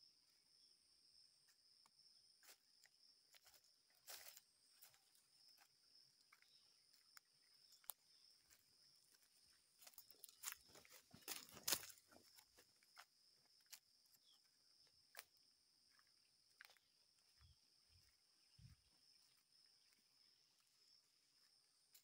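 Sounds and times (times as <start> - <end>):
high-pitched insect chorus: 0.0 - 22.0
footsteps crunching on dry leaves: 3.3 - 5.7, 7.7 - 14.4, 15.9 - 20.0.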